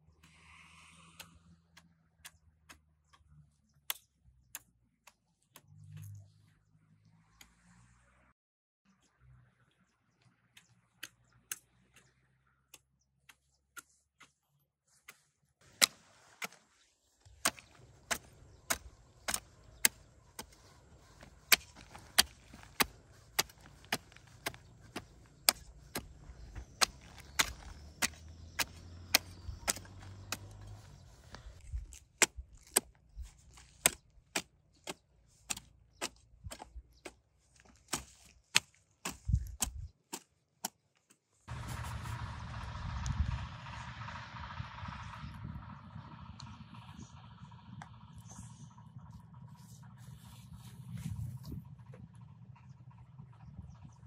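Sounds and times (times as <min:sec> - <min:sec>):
sharp strikes of a hand tool: 0:17.4 - 0:30.8
low rumble: 0:41.5 - 0:54.0.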